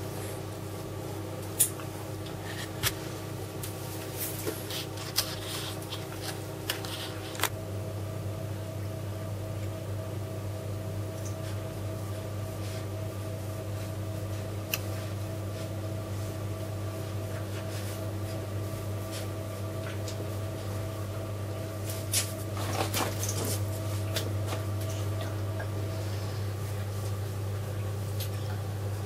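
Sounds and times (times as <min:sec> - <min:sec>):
steady low hum: 0:00.0 - 0:29.0
page turning with paper rustling: 0:04.1 - 0:07.5.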